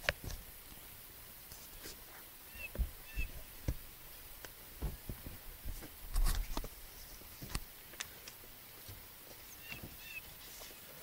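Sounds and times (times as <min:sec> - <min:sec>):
heavy thump: 0:02.7 - 0:03.8, 0:04.8 - 0:05.8.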